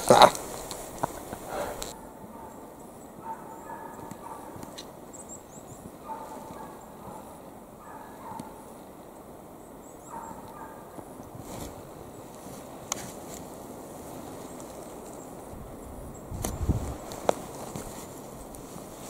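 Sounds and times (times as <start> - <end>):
footsteps on forest floor: 0.0 - 1.9
distant hound baying: 1.4 - 4.7, 6.0 - 8.6, 10.0 - 11.0.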